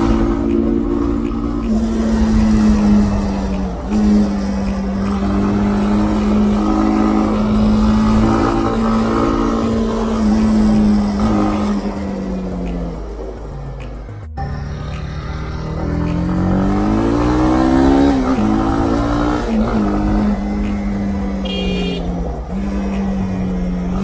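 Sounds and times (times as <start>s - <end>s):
motorcycle engine running: 0.0s - 24.0s.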